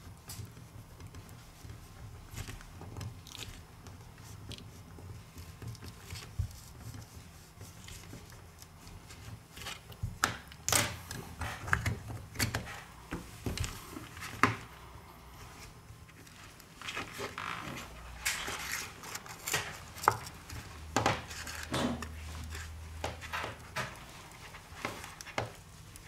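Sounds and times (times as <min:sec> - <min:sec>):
plastic card scraping and clicking: 0:18.1 - 0:24.0.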